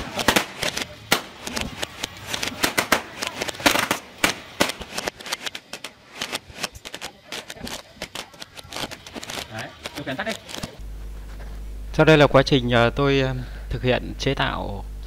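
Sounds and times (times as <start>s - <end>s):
balloons popping: 0.0s - 10.8s.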